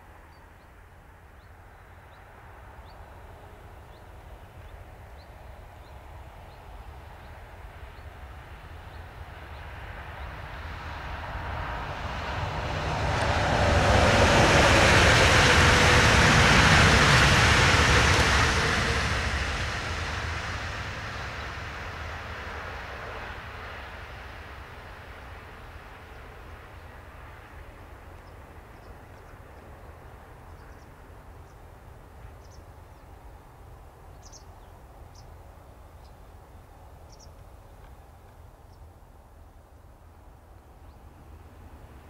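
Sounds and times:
electric train passing: 2.0 - 38.6, 39.2 - 42.0.

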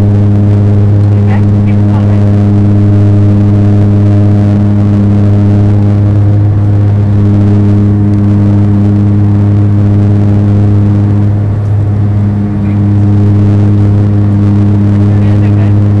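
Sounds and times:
propeller engine drone in cabin: 0.0 - 16.0.

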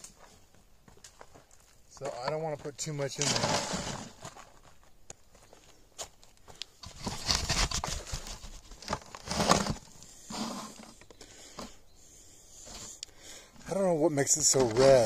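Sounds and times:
soil pattering and rustling: 0.0 - 11.0, 13.6 - 15.0.

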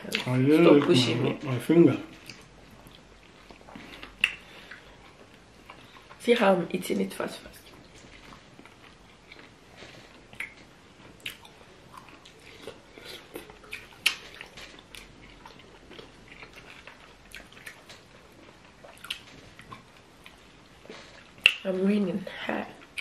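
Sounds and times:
wet chewing: 2.1 - 6.2, 7.6 - 21.8
mouth smacks and clicks: 2.2 - 4.8, 21.4 - 21.7.

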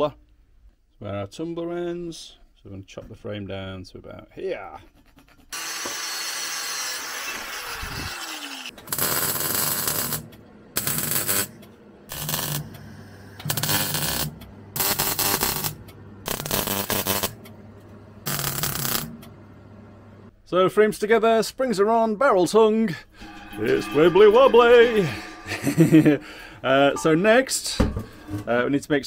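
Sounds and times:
power cutter cutting steel: 5.6 - 10.2
arc welding crackle: 8.8 - 17.4, 18.2 - 19.3
low hum: 23.1 - 28.5.

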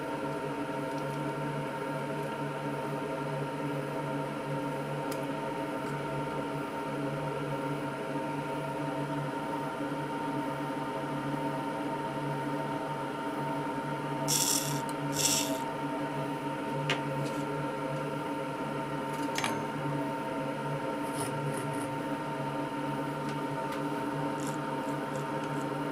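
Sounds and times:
machine hum: 14.0 - 25.9.

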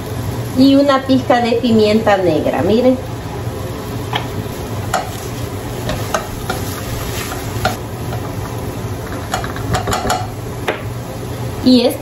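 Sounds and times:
oil sizzling: 0.0 - 12.0
spoon scraping and tapping pan: 4.9 - 5.2, 5.8 - 8.3, 9.1 - 10.4.

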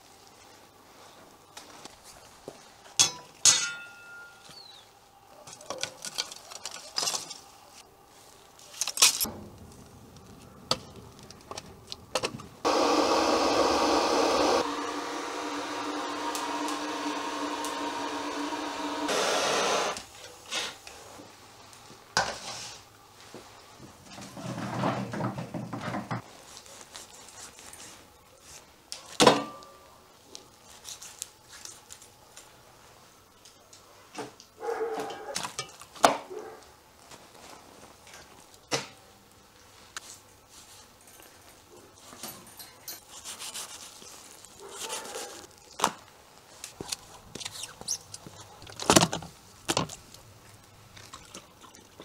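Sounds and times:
gas torch hissing: 12.6 - 20.0.

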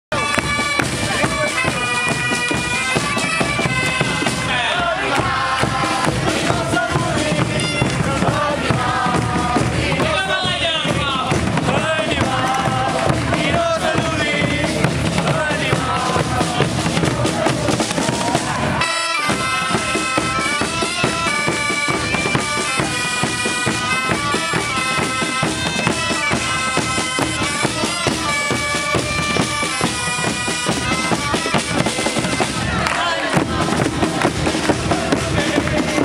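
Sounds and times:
bagpipes playing a melody: 0.1 - 4.5, 18.8 - 32.6
drums beating: 0.1 - 36.0.

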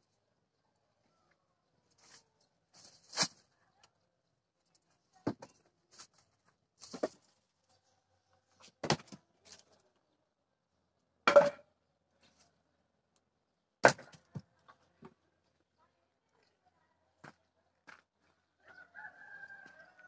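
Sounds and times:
wooden logs knocking together: 6.8 - 7.3, 8.7 - 9.2, 11.3 - 11.7, 13.8 - 15.2.

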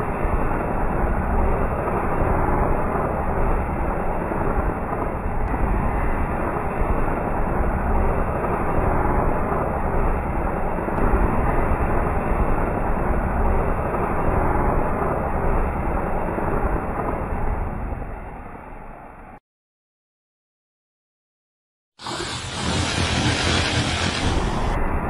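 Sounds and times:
firework fountain hissing: 0.0 - 19.4, 22.0 - 25.0.

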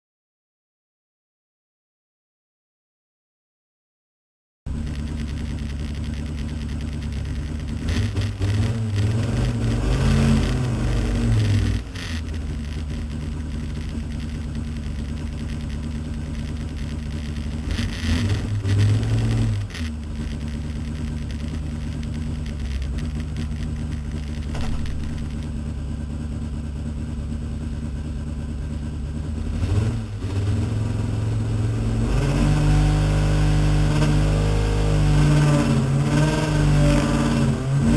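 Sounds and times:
race car engine revving: 4.7 - 25.6, 29.3 - 37.9.

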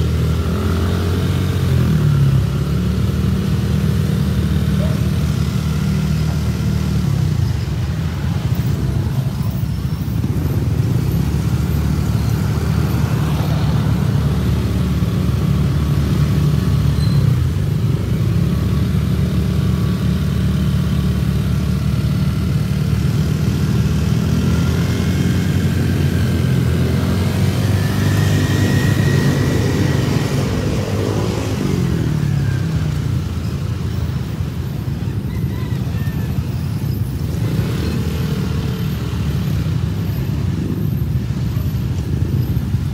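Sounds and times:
motorcycle engines running: 0.0 - 42.9
road noise: 0.0 - 42.9.

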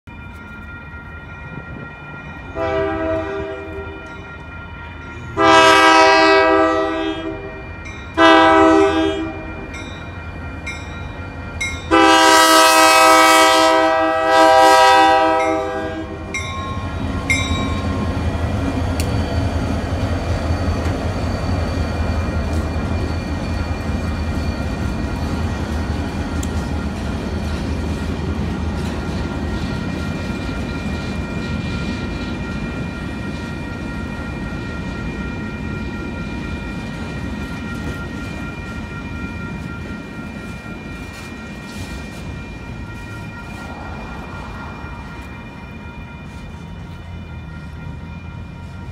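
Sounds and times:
train rolling across crossing: 0.1 - 48.9
locomotive air horn blasts: 2.5 - 4.2, 5.3 - 7.6, 8.2 - 9.7, 11.9 - 16.4.

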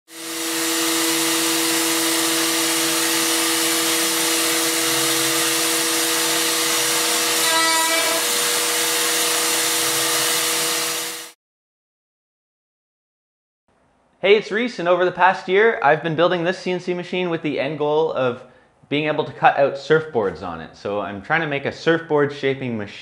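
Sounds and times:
router spindle whine: 0.1 - 11.3
dust extraction hose rushing: 0.1 - 11.4.

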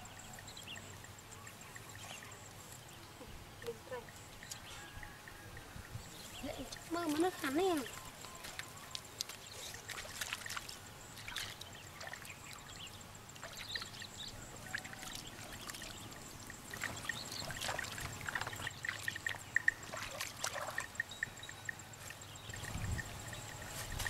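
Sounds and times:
hands splashing water in puddle: 8.4 - 12.3.

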